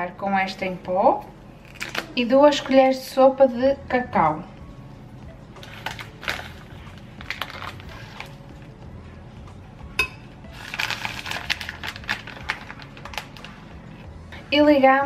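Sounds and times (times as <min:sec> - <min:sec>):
paper packet rustling: 0:05.6 - 0:08.4, 0:10.6 - 0:13.8.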